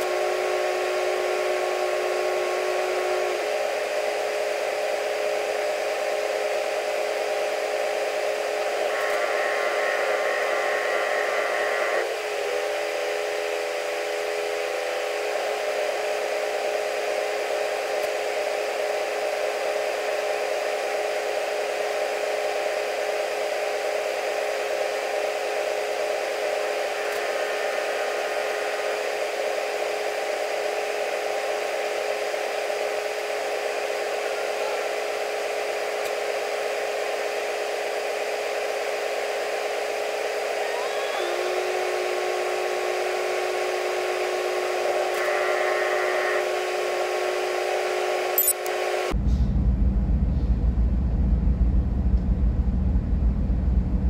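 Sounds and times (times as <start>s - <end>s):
mechanical whir: 0.0s - 34.8s.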